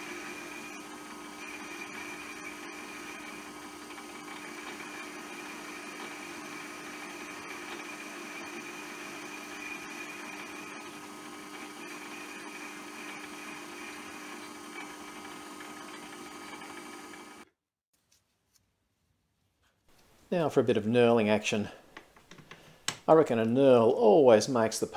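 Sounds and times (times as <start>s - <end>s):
metal lathe running: 0.0s - 17.4s.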